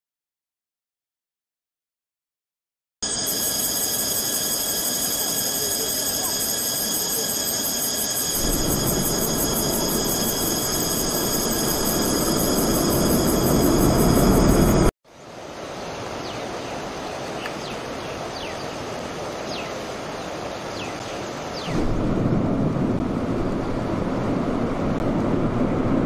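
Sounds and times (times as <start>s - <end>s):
rocket engines roaring: 4.2s - 14.9s.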